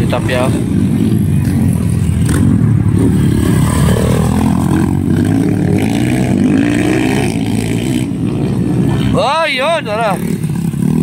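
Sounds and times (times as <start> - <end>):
dirt bike engines revving: 0.0 - 11.0.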